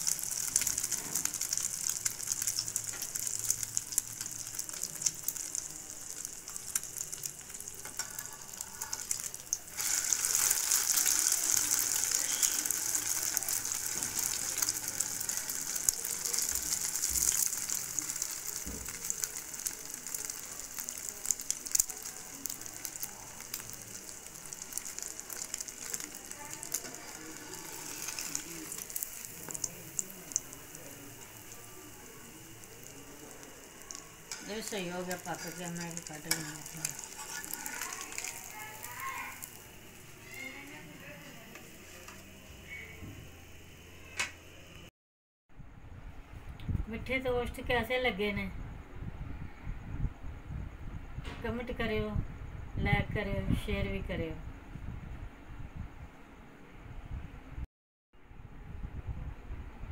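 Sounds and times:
bread sizzling in a pan: 0:00.0 - 0:44.8.

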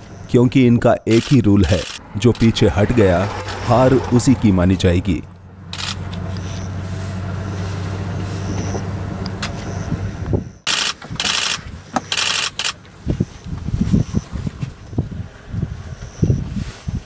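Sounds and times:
engine idling hum: 0:00.0 - 0:13.1.

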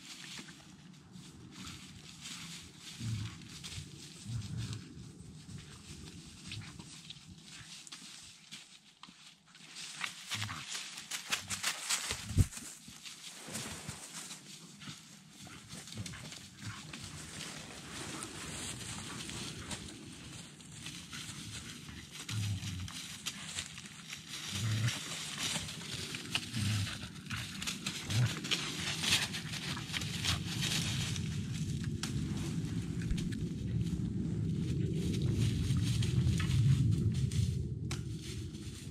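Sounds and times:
dry leaves rustling under paws: 0:00.0 - 0:38.9.

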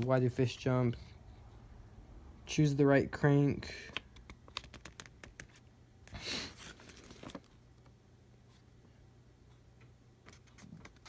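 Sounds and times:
magazine page turning: 0:04.2 - 0:05.6, 0:06.5 - 0:07.9.

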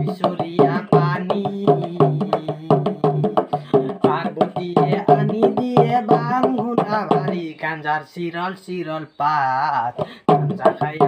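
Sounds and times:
man singing: 0:00.0 - 0:11.0.

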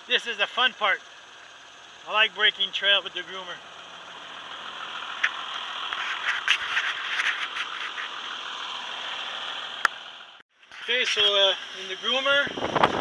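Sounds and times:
tractor tracks rattling in snow: 0:04.7 - 0:09.0.

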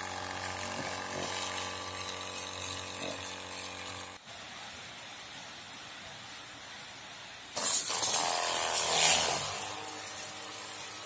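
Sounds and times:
small electric motor buzzing: 0:00.0 - 0:04.2, 0:07.6 - 0:11.0.

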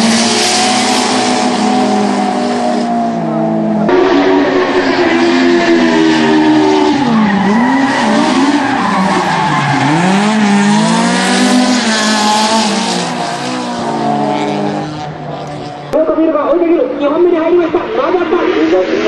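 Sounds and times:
car engine revving hard: 0:00.0 - 0:15.8
tyres squealing and skidding: 0:00.1 - 0:15.1.

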